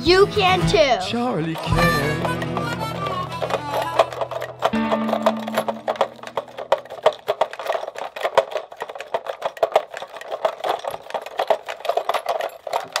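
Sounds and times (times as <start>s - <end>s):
toy switches clicking rapidly: 1.6s - 11.7s.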